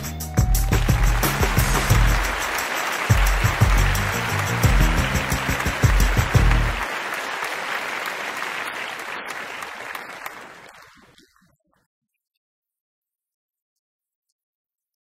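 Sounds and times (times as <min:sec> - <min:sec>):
theme music with heavy bass beat: 0:00.0 - 0:06.8
applause: 0:00.3 - 0:11.3.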